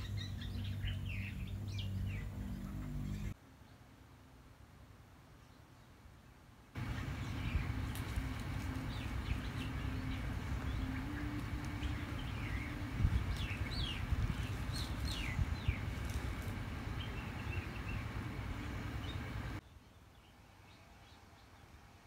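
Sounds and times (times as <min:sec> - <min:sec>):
birds chirping: 0:00.0 - 0:03.8, 0:06.6 - 0:21.8
faint hum: 0:06.8 - 0:19.6
low rumble: 0:06.8 - 0:19.6.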